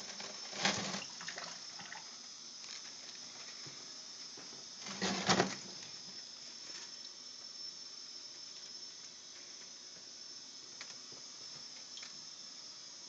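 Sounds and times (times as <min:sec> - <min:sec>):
faint steady hiss: 0:00.0 - 0:13.0
small ticks: 0:10.8 - 0:12.2.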